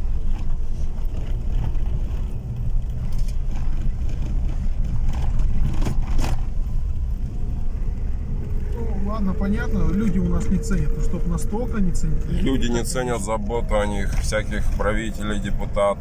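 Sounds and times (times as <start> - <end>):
car engine and tyres rumbling: 0.0 - 16.0.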